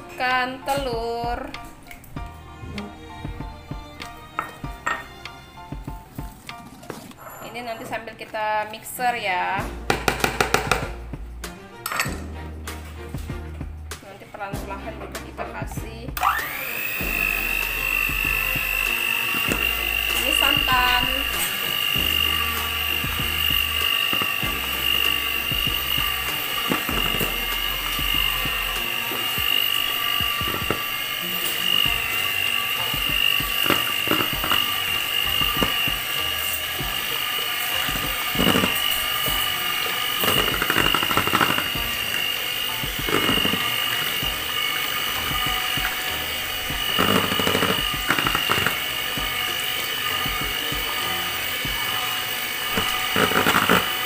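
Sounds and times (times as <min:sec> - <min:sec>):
electric hand mixer whining: 0:00.0 - 0:06.8, 0:08.9 - 0:11.0, 0:16.1 - 0:54.0
mixer beaters rattling: 0:16.2 - 0:54.0.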